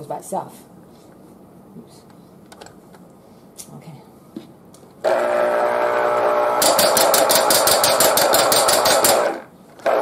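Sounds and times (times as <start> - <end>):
juicer motor hum: 5.0 - 7.2.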